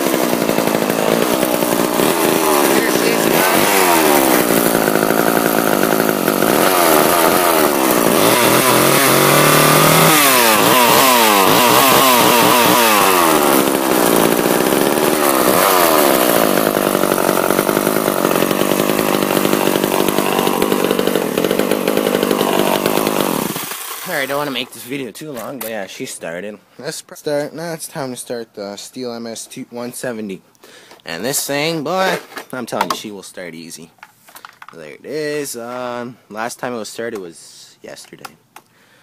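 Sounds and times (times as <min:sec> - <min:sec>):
chainsaw engine revving: 0:00.0 - 0:24.7.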